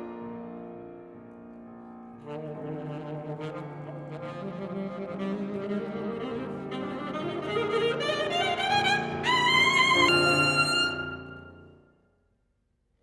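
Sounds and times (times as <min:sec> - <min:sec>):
piano notes: 0:00.0 - 0:11.9
saxophone: 0:02.2 - 0:11.9.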